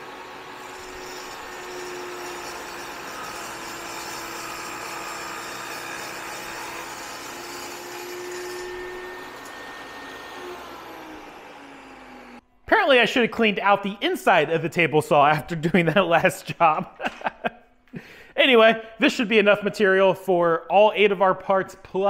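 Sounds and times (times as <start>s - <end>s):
table saw cutting plastic: 0.0s - 12.4s.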